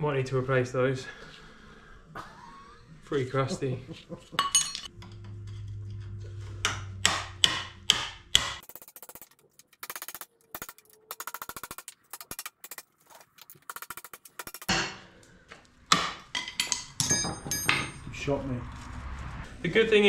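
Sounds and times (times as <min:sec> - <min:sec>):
hammer striking steel: 0:06.6 - 0:08.6, 0:14.6 - 0:15.1, 0:15.9 - 0:18.1.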